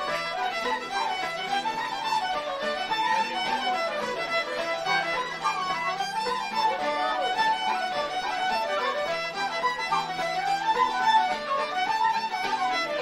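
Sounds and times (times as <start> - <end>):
violin melody with vibrato: 0.0 - 13.0.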